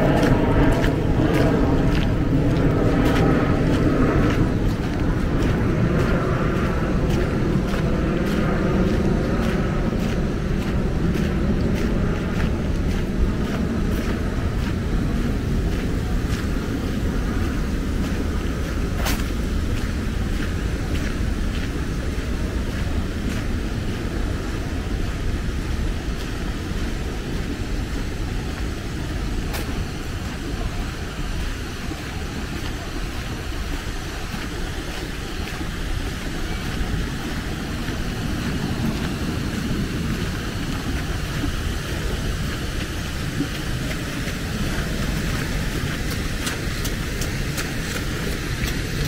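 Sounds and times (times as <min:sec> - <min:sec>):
road traffic rumble: 0:00.0 - 0:49.0
rain hissing: 0:21.8 - 0:49.0.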